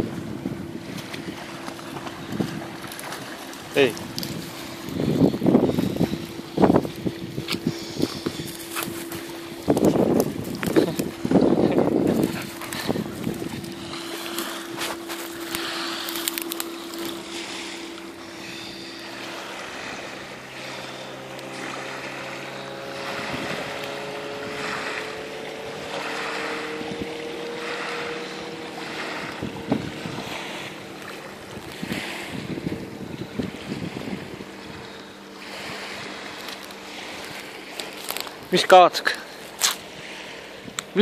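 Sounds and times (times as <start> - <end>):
wind on microphone: 0.0 - 38.7, 39.5 - 41.0
faint steady hum: 0.0 - 41.0
small waves washing on shore: 0.0 - 41.0
rustles: 1.0 - 19.3, 36.2 - 38.5.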